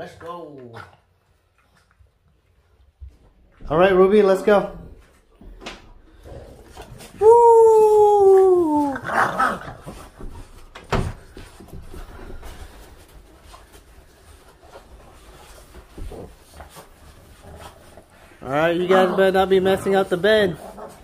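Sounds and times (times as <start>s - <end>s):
dogs scuffling: 1.4s - 21.0s
dog whining cry: 7.2s - 9.8s.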